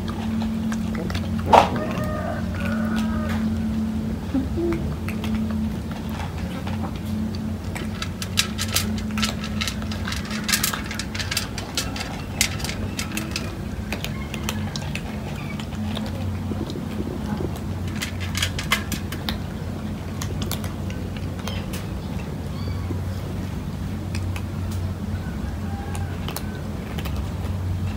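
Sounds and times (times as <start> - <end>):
cats crunching dry kibble: 0.0 - 27.9
steady low hum: 0.0 - 27.9
kibble clicking on metal: 4.7 - 22.4.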